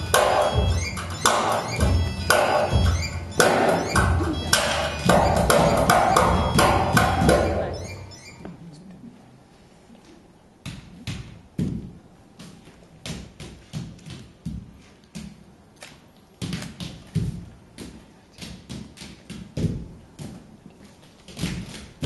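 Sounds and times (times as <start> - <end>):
percussion-driven music: 0.0 - 8.3
bare feet stamping on stage: 10.6 - 22.0.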